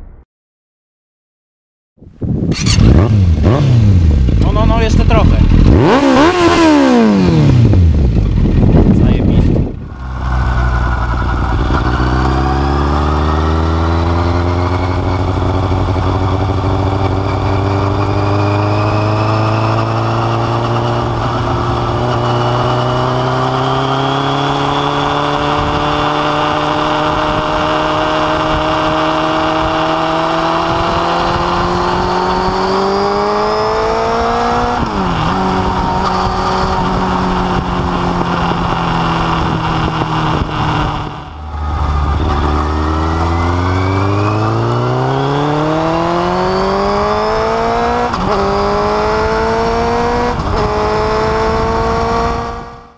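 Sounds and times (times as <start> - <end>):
motorcycle engine exhaust: 2.4 - 52.9.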